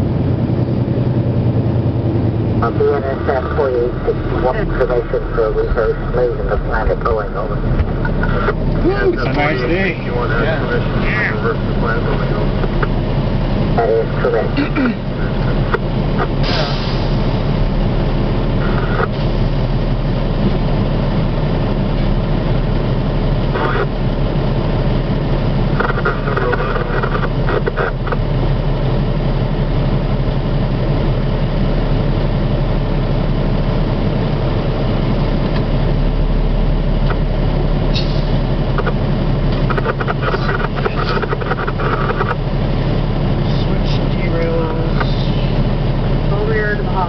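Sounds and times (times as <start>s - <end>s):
diesel locomotive engine drone: 0.0s - 47.0s.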